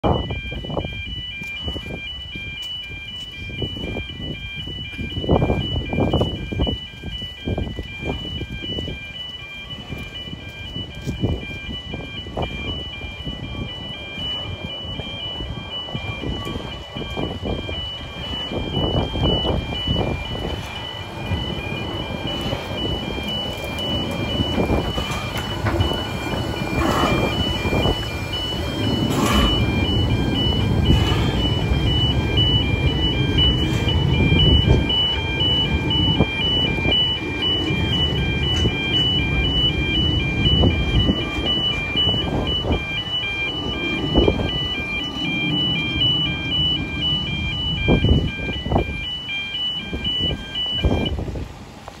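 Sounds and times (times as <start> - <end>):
road crossing alarm beeping: 0.0 - 52.0
steam locomotive pulling away: 11.3 - 50.0.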